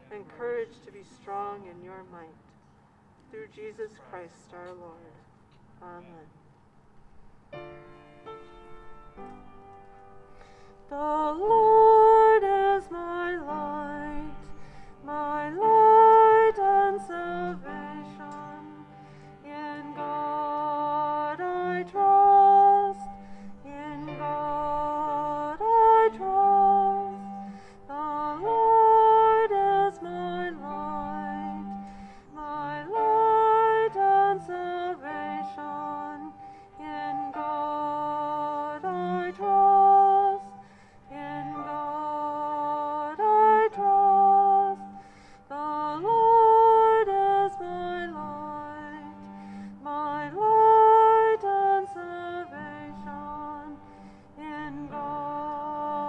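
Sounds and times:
cello low line: 7.1s - 56.0s
piano: 7.1s - 56.0s
violin: 7.5s - 56.0s.

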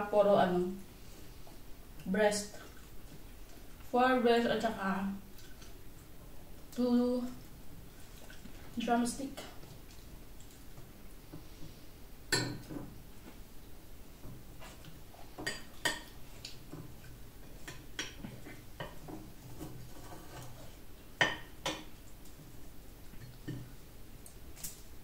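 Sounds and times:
cutlery clinking on a plate: 12.3s - 12.8s.

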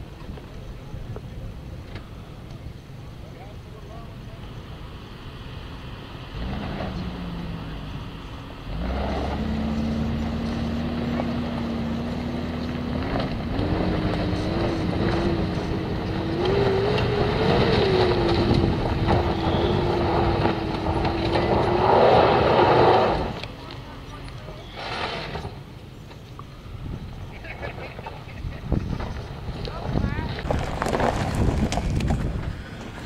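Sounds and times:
suv engine climbing hill: 0.0s - 33.0s
tyres spinning on gravel: 6.4s - 26.3s, 27.2s - 33.0s.

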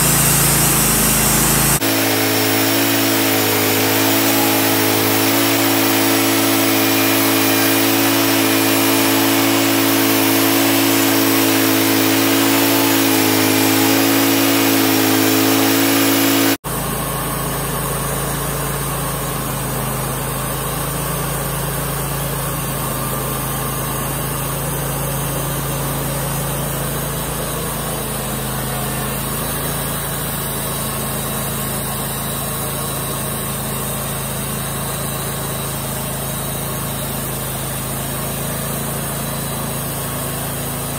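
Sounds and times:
saw blade cutting log: 0.0s - 17.0s
band sawmill engine drone: 0.0s - 37.5s.

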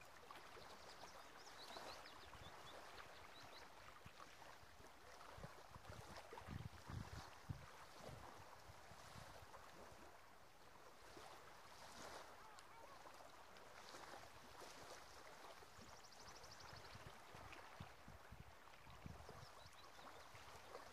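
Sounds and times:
small waves on a shore: 0.0s - 20.9s
wind on microphone: 5.3s - 9.5s, 16.7s - 19.7s.

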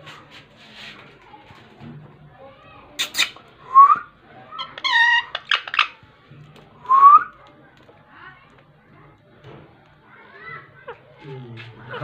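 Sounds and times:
parakeet squawking and chattering: 3.0s - 3.4s, 4.6s - 6.0s.

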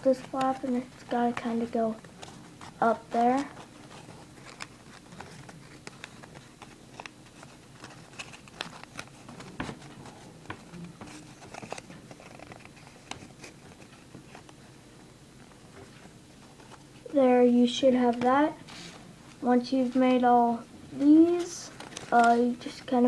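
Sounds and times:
paper crinkling and rustling: 0.0s - 14.6s, 21.0s - 23.0s.

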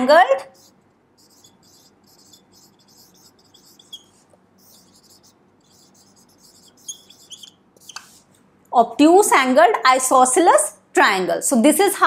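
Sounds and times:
marker squeaking on whiteboard: 0.0s - 8.3s.

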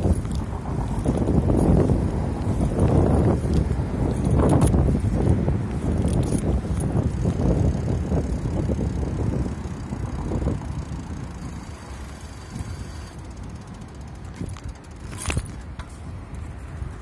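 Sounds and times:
bicycle rattling over pavement: 0.0s - 17.0s
wind on microphone: 0.0s - 17.0s.

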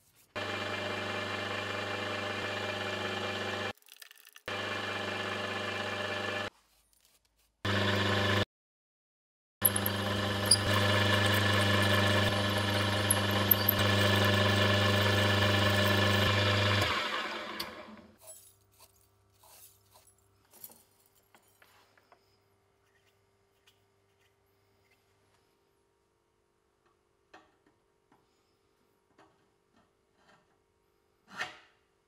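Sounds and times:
milling machine drilling aluminium: 9.6s - 18.1s.

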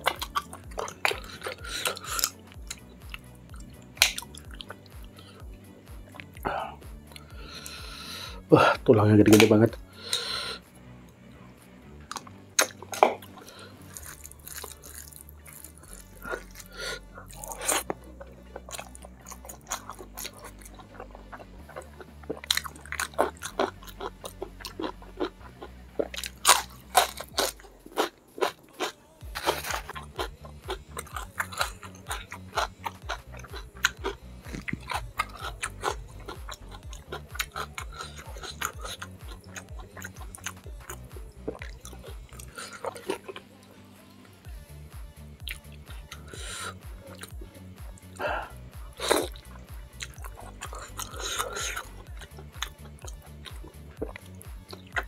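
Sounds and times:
wet mouth sounds: 0.0s - 8.7s, 12.1s - 43.5s, 45.4s - 55.0s
low pulsing beat: 0.0s - 10.0s, 29.2s - 43.1s, 44.5s - 55.0s
crunching and chewing vegetables: 0.0s - 10.6s, 12.0s - 55.0s
quiet background music: 0.0s - 55.0s.

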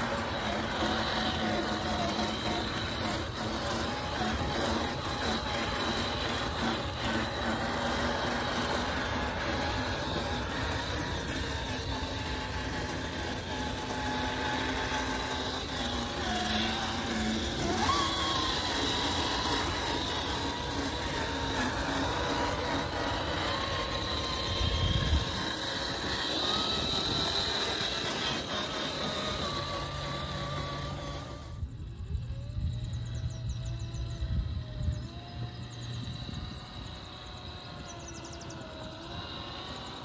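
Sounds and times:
toy car motor whining: 0.0s - 40.0s.

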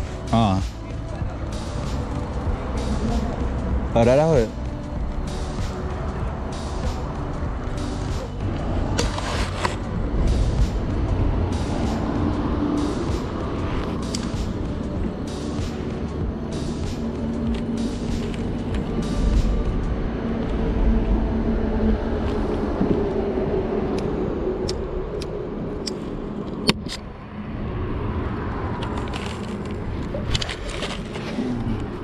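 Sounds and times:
music with light beat: 0.0s - 26.0s
low hum: 0.0s - 32.0s
traffic rumble overhead: 0.0s - 32.0s.

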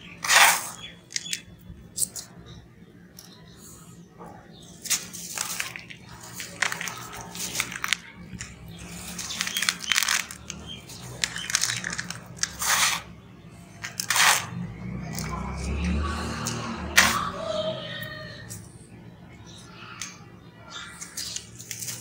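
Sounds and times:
hands crumbling gritty cement mix: 4.8s - 13.1s.

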